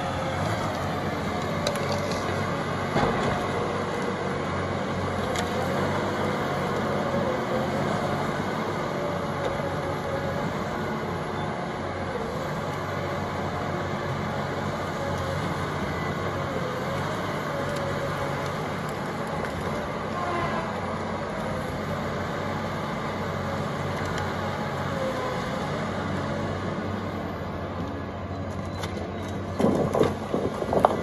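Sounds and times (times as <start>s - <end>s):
diesel engine running: 0.0s - 31.0s.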